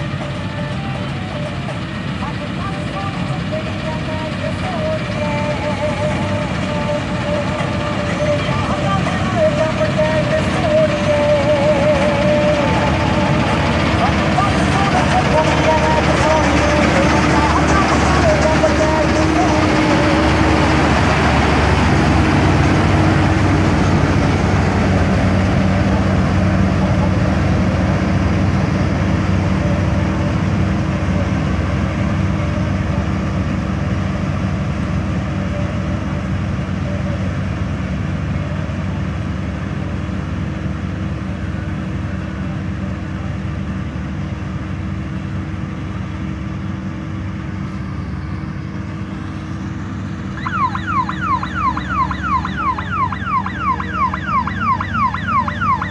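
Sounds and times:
combine harvester engine running: 0.0 - 55.9
warbling siren-like tone: 50.3 - 55.9.

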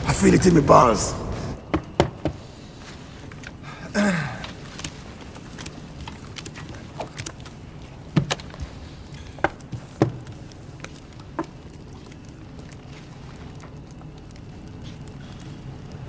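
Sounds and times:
low steady hum: 0.0 - 16.0
sharp taps and knocks: 1.7 - 2.4.

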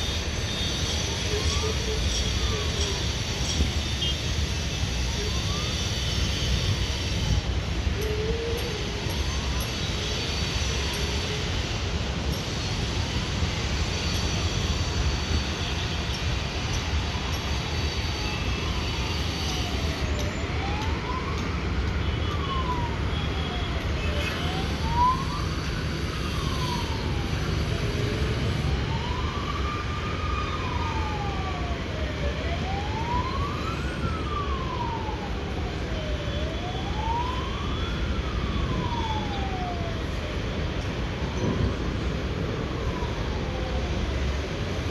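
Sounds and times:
siren wailing: 0.1 - 3.3, 4.8 - 44.9.

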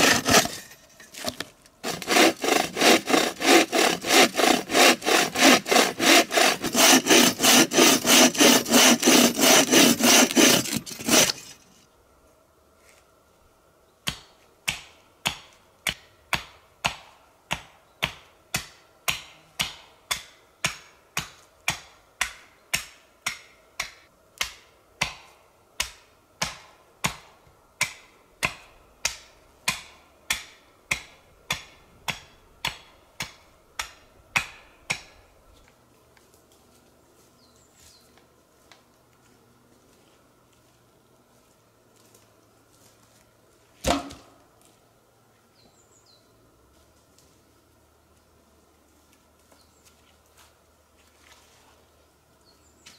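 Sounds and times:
bow saw cutting log: 0.0 - 11.7
axe chopping wood: 25.8 - 35.2, 43.8 - 44.4.

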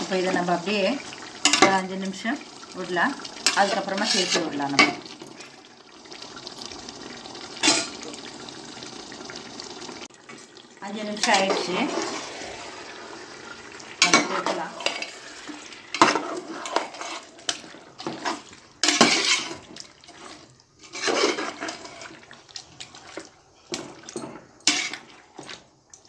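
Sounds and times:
food frying hiss: 0.0 - 26.0
metal spoon scraping a pot: 3.4 - 5.0, 14.0 - 20.2, 20.8 - 22.2, 24.6 - 25.1.

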